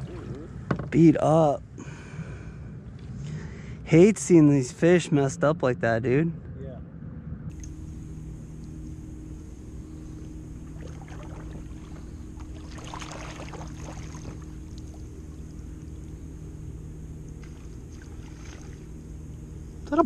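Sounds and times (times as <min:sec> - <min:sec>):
steady low hum: 0:00.0 - 0:20.0
water splashing and trickling: 0:10.6 - 0:15.8, 0:17.3 - 0:19.0.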